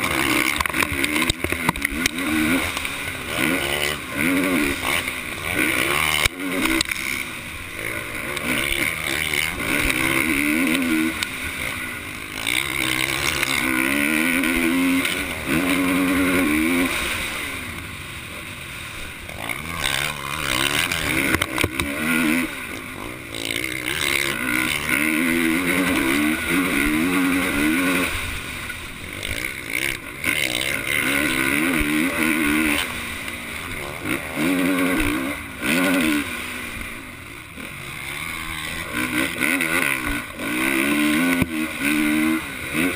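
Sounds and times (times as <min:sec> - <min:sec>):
motocross bike engine revving: 0:00.0 - 0:42.9.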